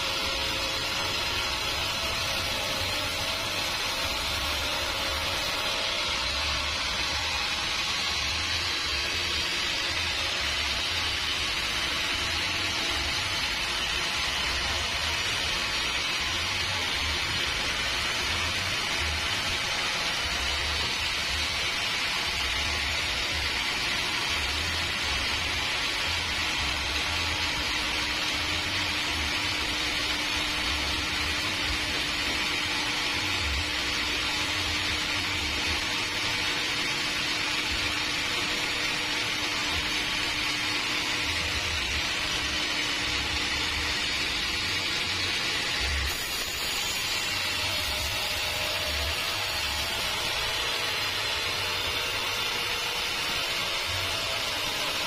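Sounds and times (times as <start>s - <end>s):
band sawmill running: 0.0s - 55.0s.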